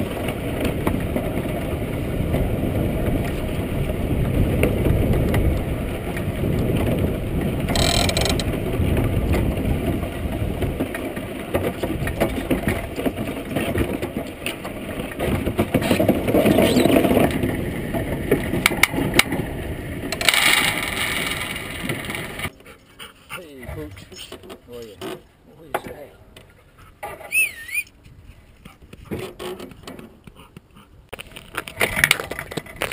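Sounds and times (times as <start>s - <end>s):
hull rattling and clicking: 0.0s - 22.5s
runners scraping over ice: 0.0s - 22.5s, 31.2s - 32.9s.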